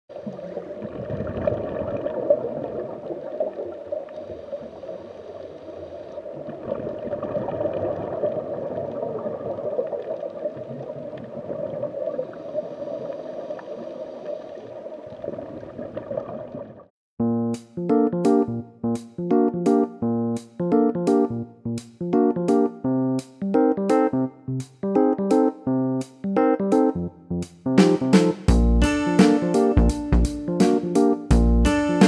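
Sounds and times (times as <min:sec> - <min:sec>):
underwater moving water: 0:00.1 - 0:16.9.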